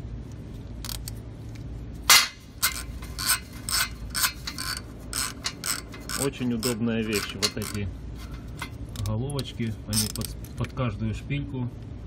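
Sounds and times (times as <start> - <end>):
wrench clicking and clinking: 2.1 - 9.2, 9.9 - 10.4.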